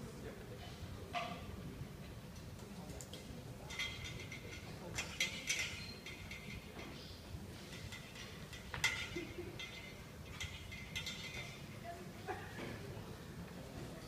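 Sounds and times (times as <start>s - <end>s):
glassware clinking: 3.6s - 7.0s, 7.6s - 11.7s.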